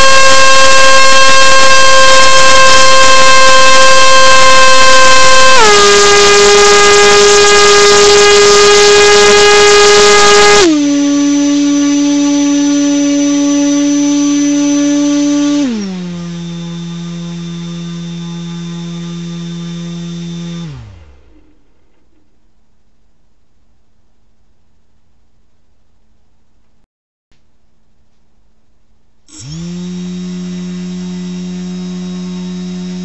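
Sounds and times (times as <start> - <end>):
electric motor propeller whine: 0.0 - 21.6, 29.3 - 33.0.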